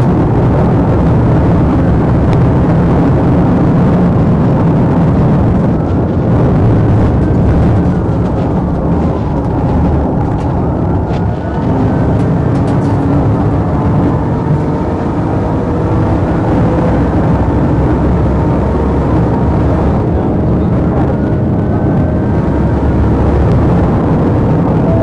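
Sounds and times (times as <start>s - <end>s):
car engine and road rumble: 0.0s - 25.0s
faint police siren wailing: 6.4s - 15.4s, 21.0s - 25.0s.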